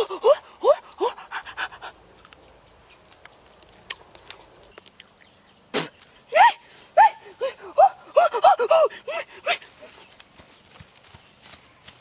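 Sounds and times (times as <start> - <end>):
man panting: 0.0 - 2.0, 6.6 - 10.0.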